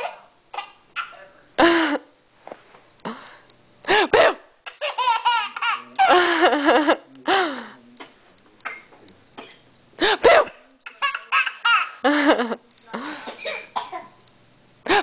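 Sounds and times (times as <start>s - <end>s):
baby laughing: 4.7s - 6.2s, 10.9s - 12.1s.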